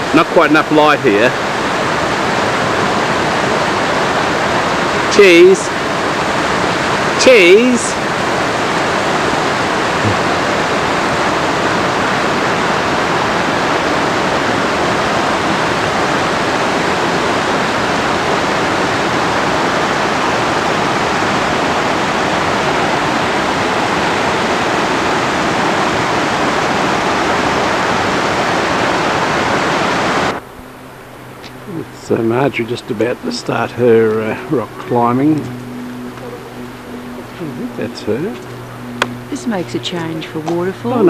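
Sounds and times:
river rushing over boulders: 0.0 - 31.5.

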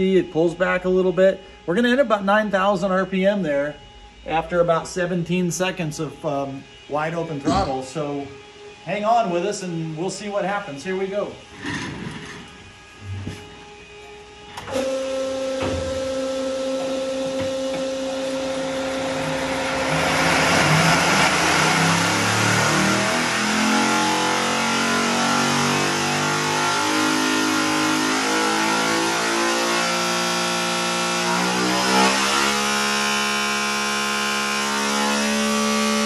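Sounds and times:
engine at full throttle: 14.5 - 36.0.

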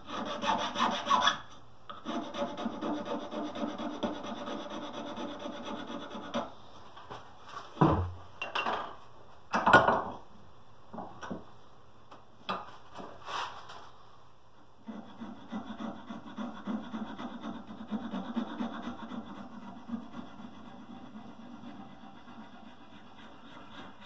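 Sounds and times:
hand tool scraping wood: 0.0 - 1.4, 14.8 - 24.0.

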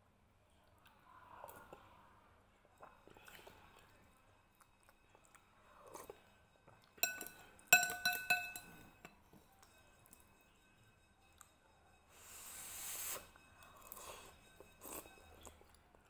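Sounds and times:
faint eating mouth sounds: 0.4 - 10.3, 11.3 - 16.0
metal spoon clinking against bowl: 6.8 - 12.0.

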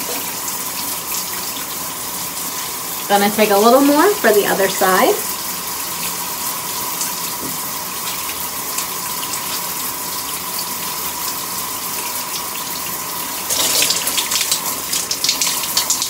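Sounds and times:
shower water running: 0.0 - 16.0
water splashes: 13.4 - 16.0.

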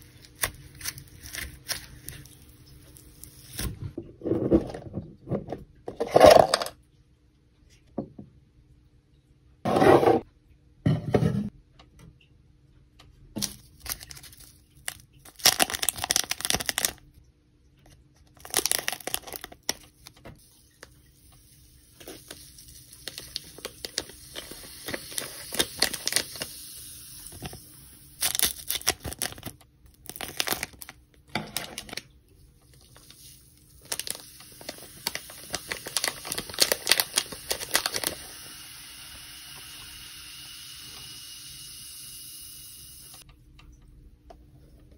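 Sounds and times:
plastic sachet crinkling: 13.4 - 17.1, 18.3 - 20.9, 22.0 - 26.6, 27.2 - 38.3
water fizzing: 18.4 - 43.3.

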